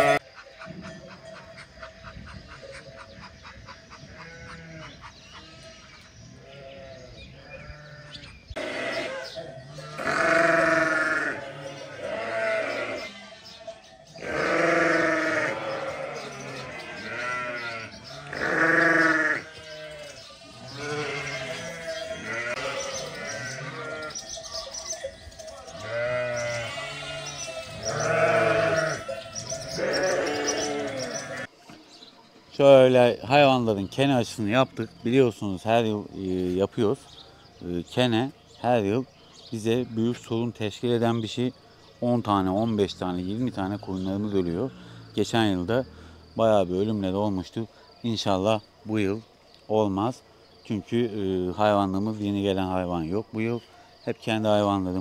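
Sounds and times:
sheep bleating: 0:00.0 - 0:00.2, 0:04.0 - 0:24.3, 0:25.6 - 0:31.5.

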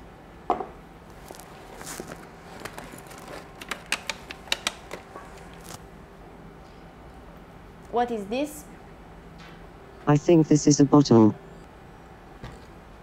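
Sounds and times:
objects clicking in a bag: 0:01.1 - 0:05.8.

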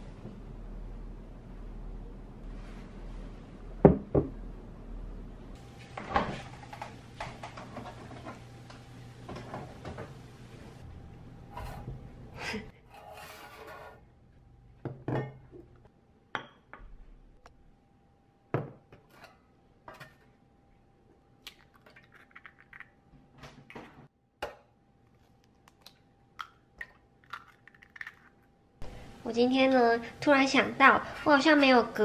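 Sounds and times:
eggs tapped and cracked: 0:25.5 - 0:28.4.

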